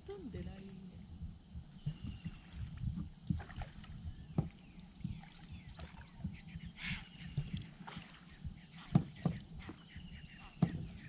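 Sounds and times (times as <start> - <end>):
water lapping against canoe hull: 1.6 - 11.0
paddle splash: 1.9 - 11.0
low knocks on hull: 4.3 - 5.2, 8.8 - 9.8, 10.5 - 11.0.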